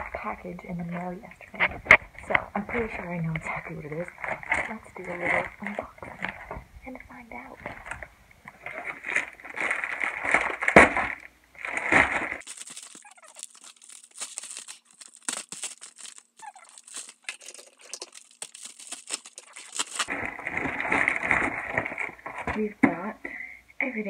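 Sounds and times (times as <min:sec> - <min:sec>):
plastic crinkling: 0:01.5 - 0:06.6, 0:07.5 - 0:22.6
plastic mailer tearing: 0:08.6 - 0:22.3.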